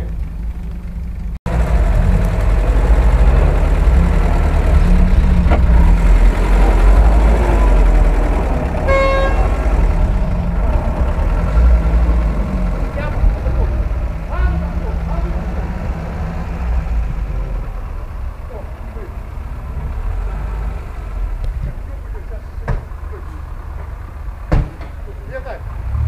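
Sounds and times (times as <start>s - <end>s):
vehicle engine running: 0.0s - 26.0s
short horn toot: 8.8s - 9.6s.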